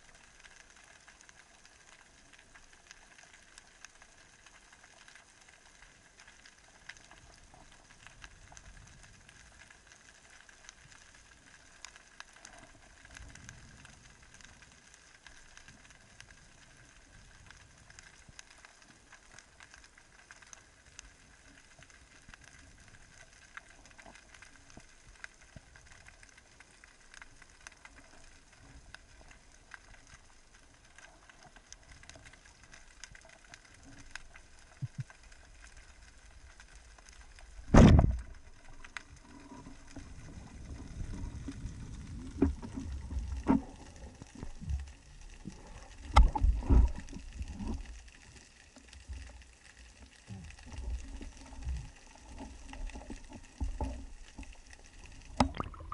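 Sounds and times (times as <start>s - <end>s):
underwater crackling ticks: 0.0s - 55.9s
low underwater thumps and rumbling: 34.8s - 35.1s, 37.6s - 38.6s, 40.1s - 45.1s, 46.0s - 47.8s, 55.3s - 55.9s.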